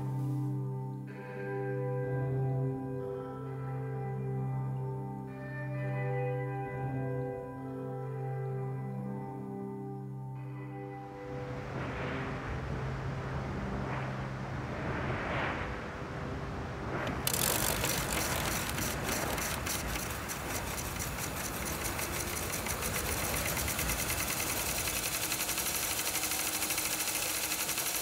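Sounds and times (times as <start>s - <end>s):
wind noise: 11.3s - 21.6s
microfilm reader winding film: 17.1s - 28.0s.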